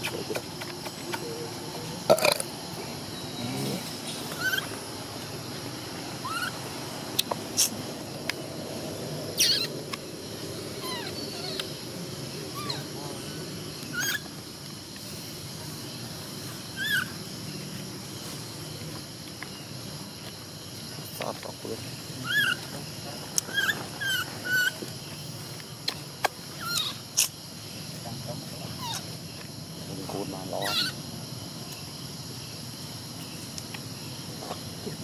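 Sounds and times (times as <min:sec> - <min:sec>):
infant monkey squeaking: 0:03.5 - 0:04.8, 0:06.2 - 0:06.6, 0:09.4 - 0:09.8, 0:10.7 - 0:11.8, 0:12.5 - 0:14.4, 0:16.7 - 0:17.2, 0:22.2 - 0:22.8, 0:23.4 - 0:24.8, 0:26.5 - 0:27.4, 0:28.7 - 0:29.2, 0:30.6 - 0:31.0.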